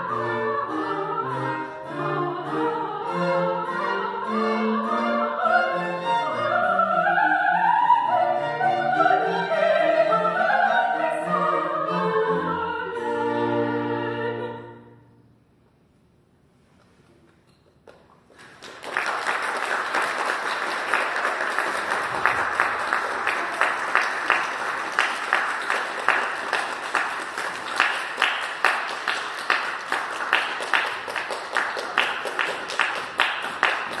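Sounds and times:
audience applauding: 18.2s - 34.0s.

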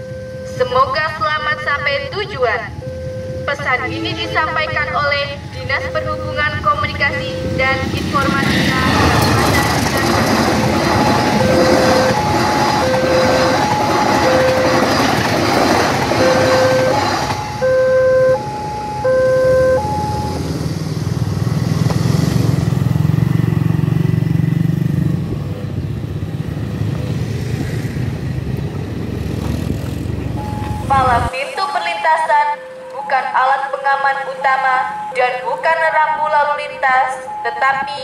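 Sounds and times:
two-tone warning siren: 0.0s - 20.7s, 30.4s - 38.0s
passing train rolling: 0.4s - 38.0s
motorcycle engines: 0.5s - 31.3s.

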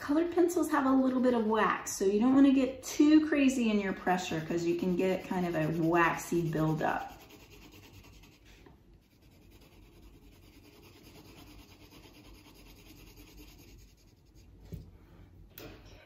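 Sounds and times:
pencil shading on paper: 4.3s - 14.4s.

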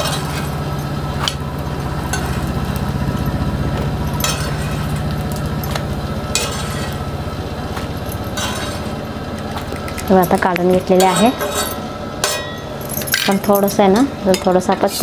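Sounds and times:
spoon scraping iron griddle: 0.0s - 2.6s, 4.1s - 7.1s, 7.7s - 12.7s
low pulsing machine hum: 0.0s - 15.0s.

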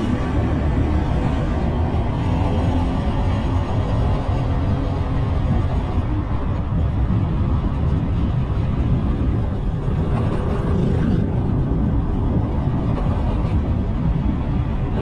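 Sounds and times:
bike road noise: 0.0s - 15.0s
wind buffeting microphone: 0.0s - 15.0s.

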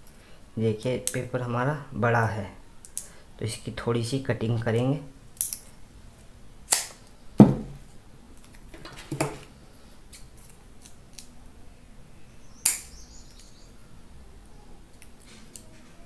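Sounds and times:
objects clicking and knocking on table: 8.7s - 9.5s.

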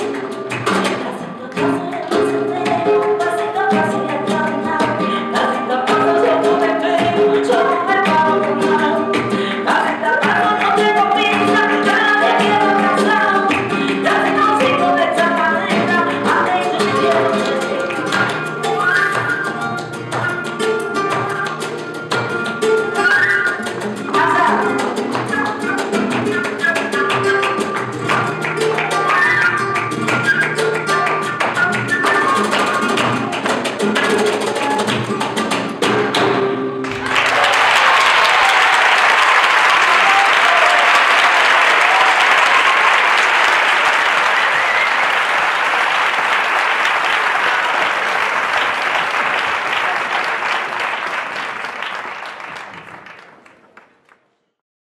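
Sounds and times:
audience applauding: 0.0s - 2.4s, 3.9s - 35.9s, 36.8s - 54.3s
flamenco music: 0.0s - 54.4s.

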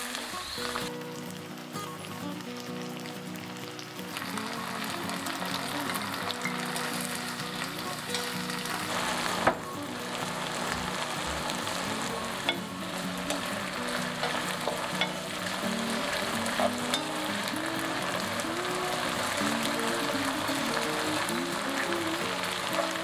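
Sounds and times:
shrimp sizzling in a wok: 0.0s - 23.0s
wooden spatula stirring: 5.2s - 23.0s.

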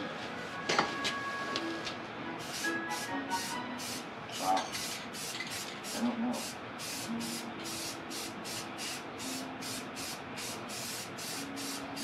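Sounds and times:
spray paint can hissing: 4.8s - 12.0s.

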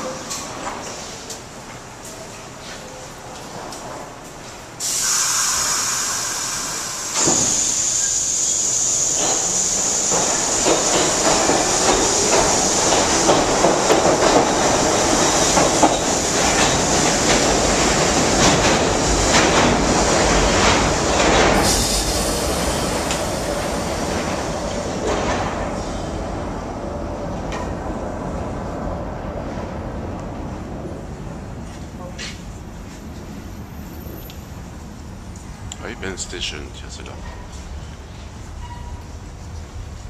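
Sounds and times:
subway train high whine: 0.0s - 40.0s
train wheels clattering over rail joints: 9.2s - 21.8s.

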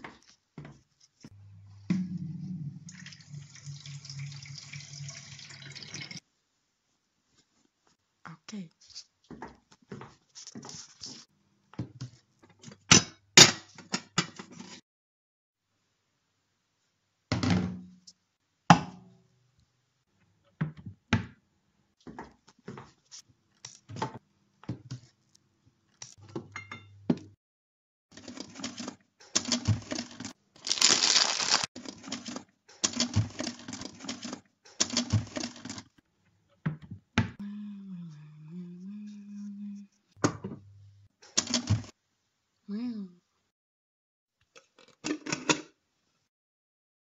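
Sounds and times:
low steady tone: 1.4s - 5.5s
rustling and crinkling: 29.8s - 32.5s.

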